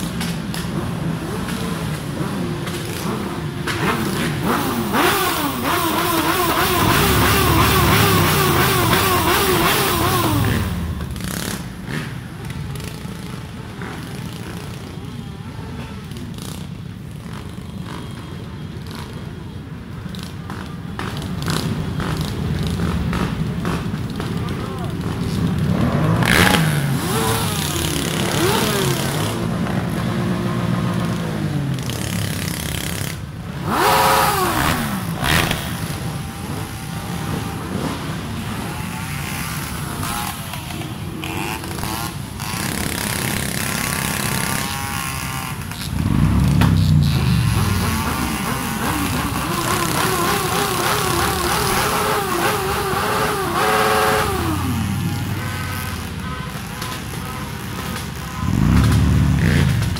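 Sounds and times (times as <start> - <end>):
motorcycle engines revving: 0.0 - 59.9.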